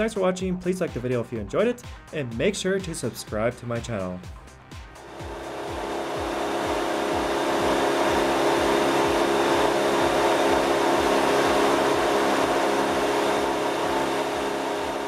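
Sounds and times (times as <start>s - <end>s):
engine running with even hum: 5.0s - 15.0s.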